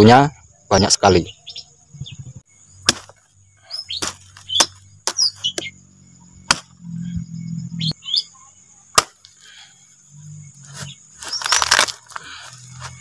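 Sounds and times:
birds chirping: 0.0s - 13.0s
high insect drone: 0.0s - 13.0s
knife chopping banana corm: 2.9s - 3.2s, 6.5s - 6.7s, 9.0s - 9.2s.

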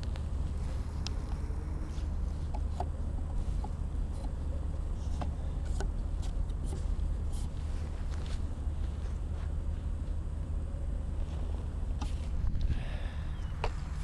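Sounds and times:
ticks and rustles in grass: 0.0s - 10.2s
low outdoor rumble: 0.0s - 14.0s.

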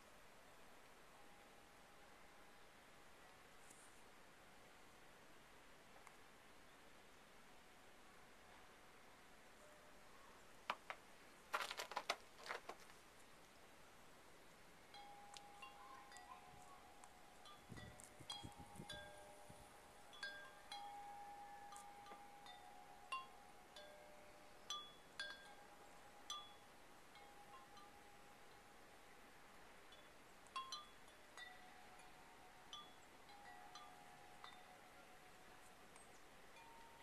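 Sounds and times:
wind chime ringing: 14.9s - 28.1s.

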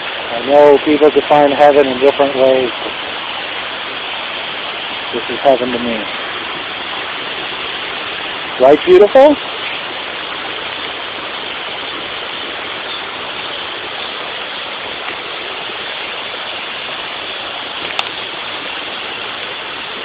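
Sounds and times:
flowing stream water: 0.0s - 20.0s.

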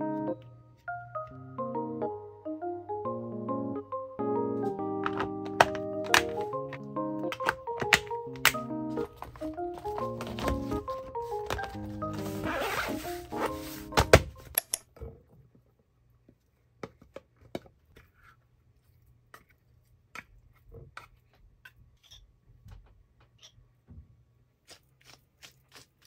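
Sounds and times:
background music: 0.0s - 14.6s
zipper being pulled shut: 12.2s - 13.5s.

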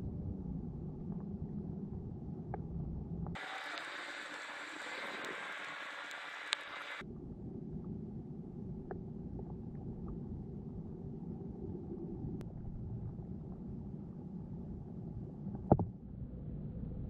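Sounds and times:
muffled underwater rumble: 0.0s - 17.0s
faint clicks: 2.5s - 7.0s
thin steady hiss: 3.4s - 7.0s.

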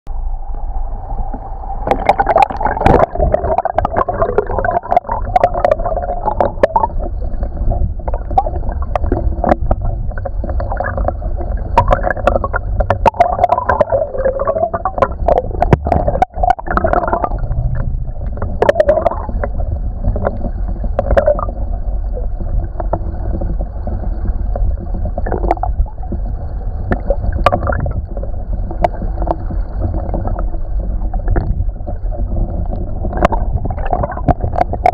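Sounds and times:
creek water flowing underwater: 0.1s - 34.9s
sharp clicks and knocks: 26.9s - 34.9s.

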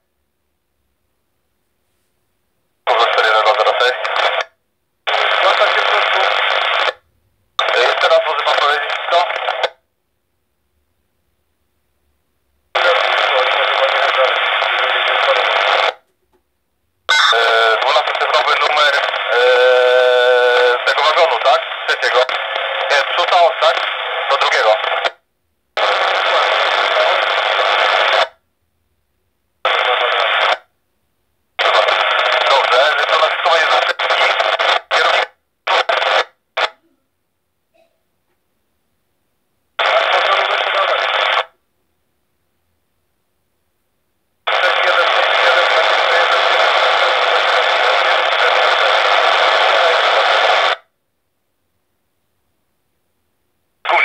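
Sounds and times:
radio static bursts: 2.9s - 4.4s, 5.1s - 7.0s, 7.6s - 9.7s, 12.8s - 16.0s, 17.1s - 25.2s, 25.8s - 28.3s, 29.7s - 30.7s, 31.6s - 36.7s, 39.8s - 41.5s, 44.5s - 50.8s.

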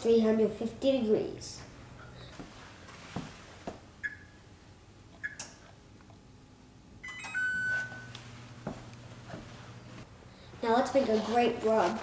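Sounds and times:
oven control panel beeps: 4.0s - 4.4s, 5.2s - 5.6s.

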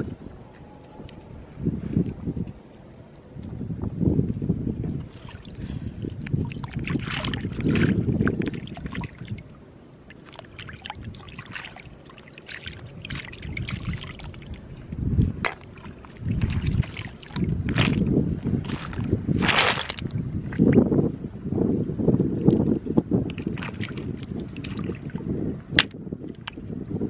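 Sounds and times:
wind rumbling on microphone: 0.0s - 27.0s
water trickling and dripping: 5.0s - 19.1s
water sloshing around legs: 5.0s - 20.8s, 23.3s - 25.3s
loud water splash: 5.1s - 9.5s, 10.1s - 14.7s, 15.4s - 20.1s.

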